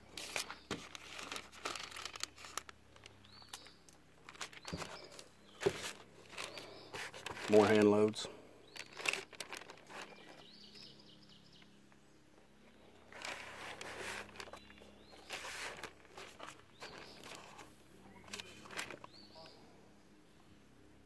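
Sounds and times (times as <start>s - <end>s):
cardboard boxes rustling: 4.2s - 8.1s, 13.0s - 17.7s
faint bird chirps: 16.5s - 20.7s.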